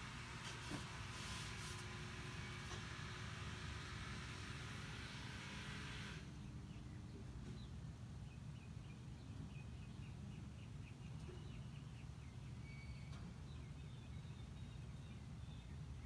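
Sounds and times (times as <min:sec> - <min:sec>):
birds chirping: 0:06.2 - 0:16.0.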